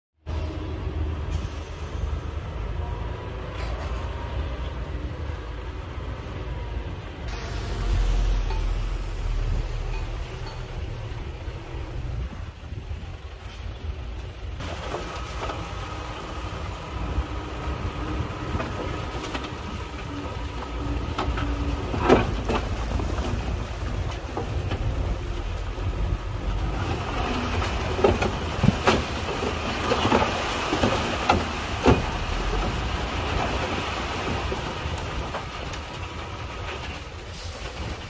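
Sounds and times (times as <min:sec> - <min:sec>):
dump truck diesel engine running: 0:00.6 - 0:29.7
hydraulic hoist raising bed: 0:07.3 - 0:11.2.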